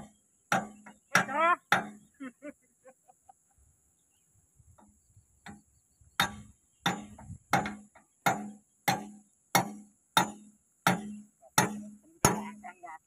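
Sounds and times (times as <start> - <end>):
hammer striking steel pin: 6.2 - 12.6.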